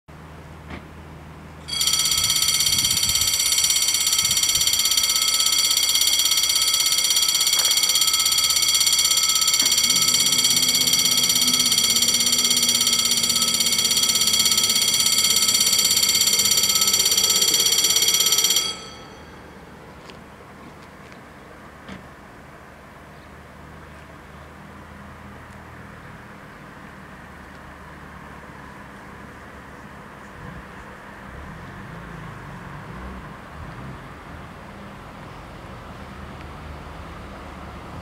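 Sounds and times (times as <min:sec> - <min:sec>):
level crossing bells ringing: 0:01.6 - 0:20.2
barrier motor hum: 0:01.7 - 0:20.8.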